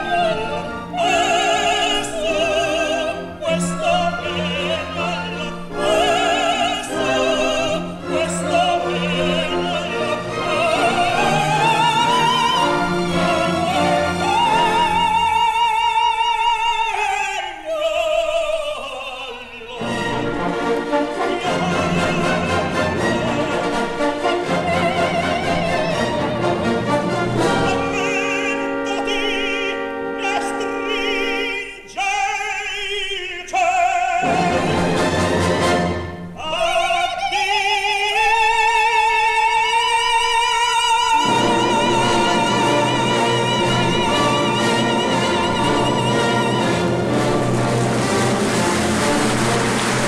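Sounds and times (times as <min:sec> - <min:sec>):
orchestra playing: 0:00.0 - 0:16.0, 0:19.8 - 0:31.8, 0:33.9 - 0:37.0, 0:41.1 - 0:50.0
operatic duet singing: 0:00.0 - 0:49.2.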